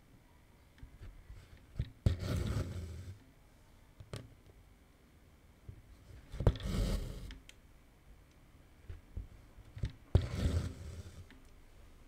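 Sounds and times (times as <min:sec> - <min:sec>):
thread rasping through cloth: 0:00.8 - 0:03.2, 0:09.8 - 0:11.4.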